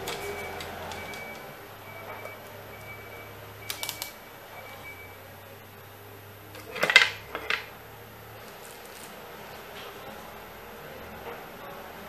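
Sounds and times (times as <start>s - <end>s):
plastic housing clattering on wood: 6.6s - 7.7s.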